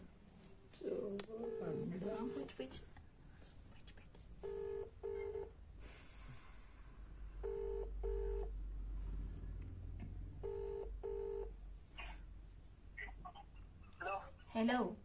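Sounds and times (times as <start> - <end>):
phone ringback tone: 1.4 - 1.9, 4.4 - 5.5, 7.4 - 8.5, 10.4 - 11.5
low hum: 6.9 - 11.6.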